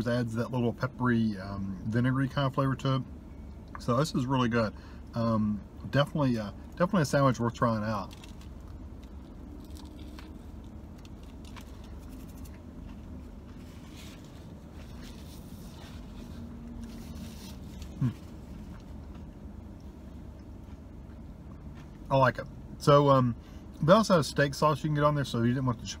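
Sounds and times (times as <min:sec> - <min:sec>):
car cabin hum: 0:05.4 - 0:26.0
man chewing: 0:08.1 - 0:22.0.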